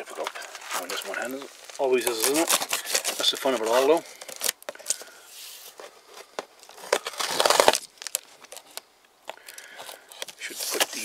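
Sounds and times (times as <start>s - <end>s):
cardboard rustle: 0.1s - 8.8s, 9.7s - 11.0s
knife slitting packing tape: 2.0s - 5.0s, 6.9s - 8.8s.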